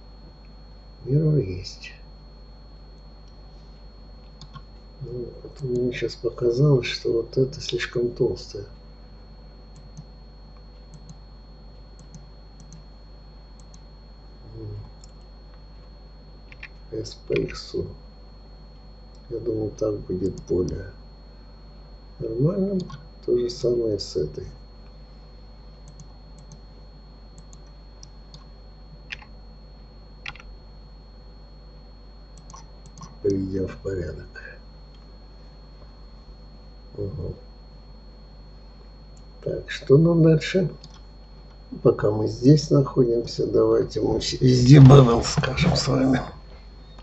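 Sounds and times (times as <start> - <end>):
faint electrical hum: 0.0 - 47.0
computer mouse clicks: 4.3 - 4.7, 9.7 - 10.1, 10.9 - 11.2, 12.0 - 12.9, 13.6 - 13.8, 14.9 - 15.3, 16.5 - 17.6, 22.8 - 23.0, 25.8 - 26.6, 27.3 - 29.3, 30.2 - 30.5, 32.4 - 33.4, 40.8 - 41.1.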